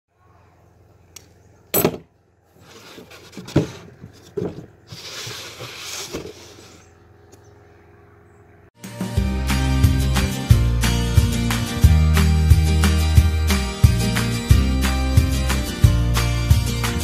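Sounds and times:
wood scraping against table: 2.6 - 6.9.

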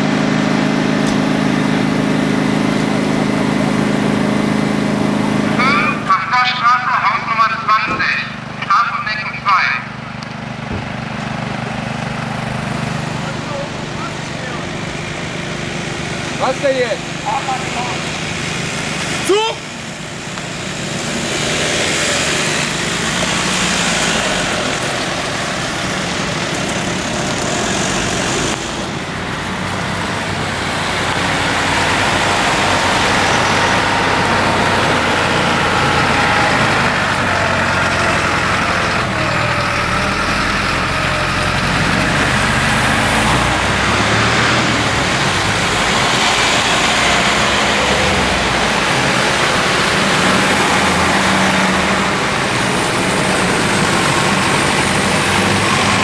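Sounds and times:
motor vehicle engine hum: 0.0 - 56.0.

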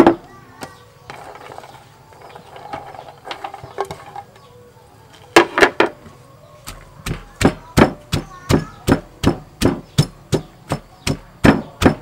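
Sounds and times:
wooden pestle knocks: 6.7 - 12.0.

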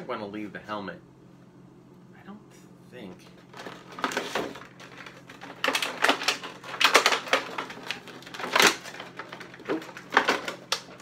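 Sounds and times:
plastic packaging crinkling: 3.4 - 11.0.

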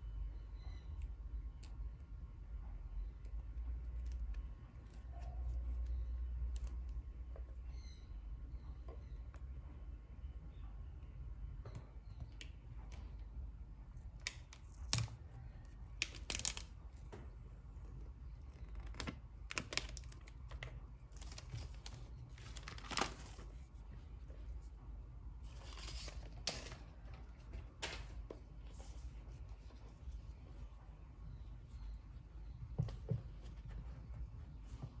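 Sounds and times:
plastic shrink wrap crinkling: 18.6 - 23.6
shrink wrap rustling: 18.6 - 23.7.

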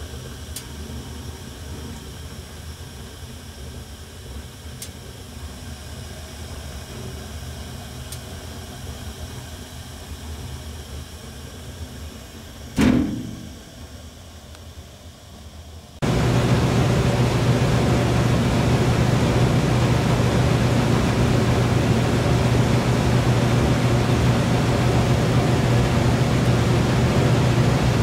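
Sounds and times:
gas burners rumbling: 10.8 - 28.0
loud thump: 12.8 - 13.6.

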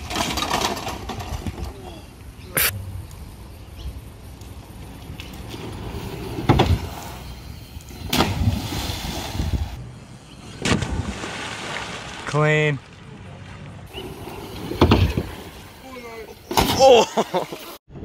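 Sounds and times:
bike rolling over wooden boardwalk: 0.0 - 2.0, 4.3 - 9.8, 13.6 - 15.8
splashing into water: 10.6 - 15.8.

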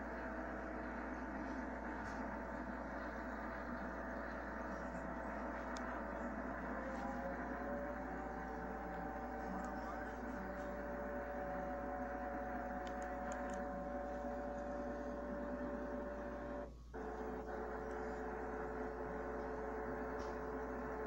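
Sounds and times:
low mains hum: 0.0 - 21.0
steady drone with held tones: 0.0 - 21.0.

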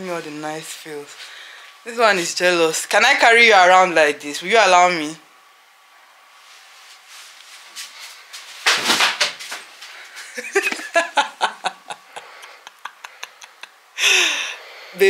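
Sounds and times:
woman laughing in short bursts: 10.2 - 14.3.

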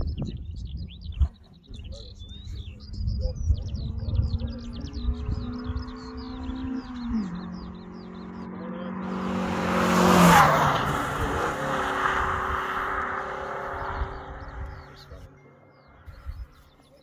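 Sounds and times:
birds chirping faintly: 0.0 - 17.0
race car engine passing: 3.9 - 16.1.

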